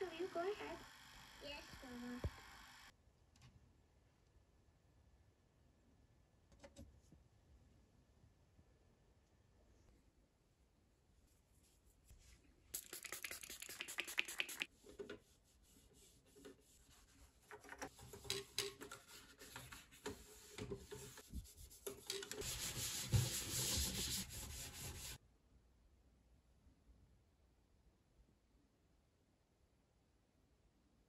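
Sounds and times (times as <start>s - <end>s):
wipe rubbing on plastic casing: 19.0s - 25.2s.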